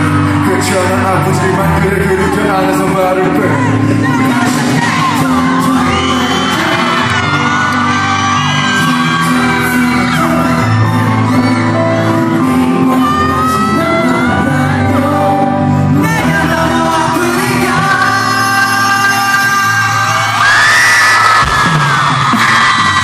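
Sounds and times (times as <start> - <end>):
man singing into microphone: 0.0 - 20.5
pop ballad backing track: 0.0 - 23.0
audience shouting: 3.7 - 14.6, 19.7 - 23.0.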